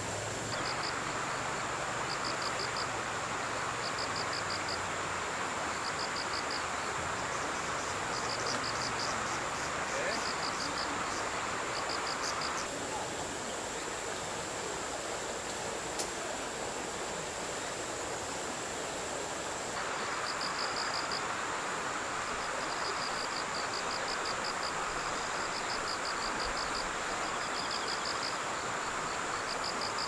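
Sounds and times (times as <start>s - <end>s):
outdoor hiss: 0.0s - 0.6s, 12.6s - 20.0s
insects chirping in trills: 0.0s - 0.9s, 11.8s - 19.8s
high-pitched insect drone: 12.7s - 19.8s.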